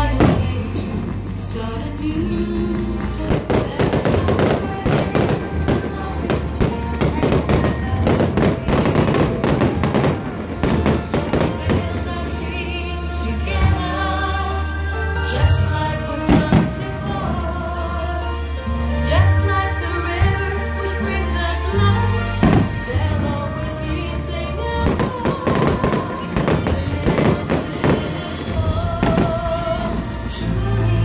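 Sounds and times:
fireworks bangs and crackles: 0.0s - 13.9s, 16.3s - 17.4s, 22.4s - 23.6s, 24.8s - 30.1s
loud music: 0.0s - 31.0s.

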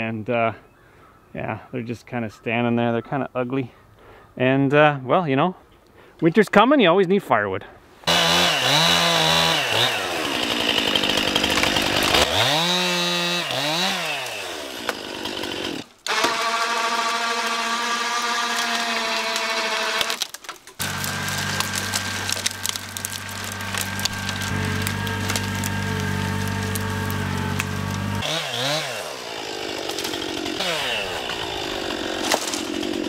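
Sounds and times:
chainsaw revving: 8.1s - 20.2s, 20.8s - 33.0s
tractor engine drone: 20.8s - 28.3s.

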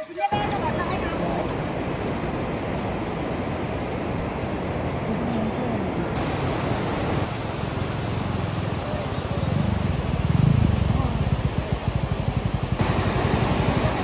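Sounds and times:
heavy rain: 4.8s - 14.0s.

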